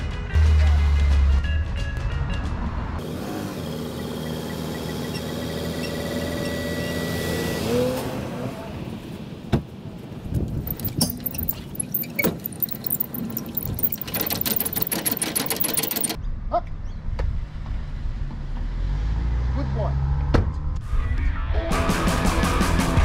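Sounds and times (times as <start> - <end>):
fast jangling rattle: 10.6 - 16.2.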